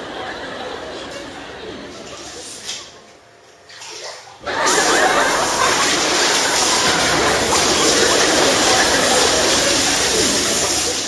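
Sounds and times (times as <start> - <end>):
water gushing into bathtub: 3.8 - 11.0.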